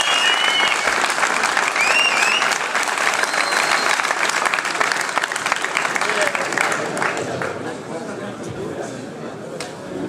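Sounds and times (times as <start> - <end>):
high gliding whistles: 0.0 - 1.0, 3.2 - 4.0
crowd applauding: 0.0 - 7.7.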